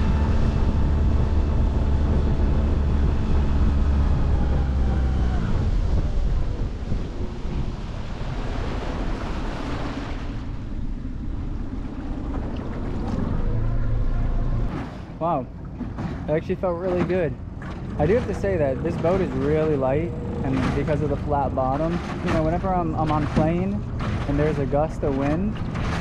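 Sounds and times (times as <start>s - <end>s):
wind on microphone: 0.0s - 14.7s
outboard motor drone: 0.0s - 26.0s
water rushing along hull: 0.0s - 26.0s.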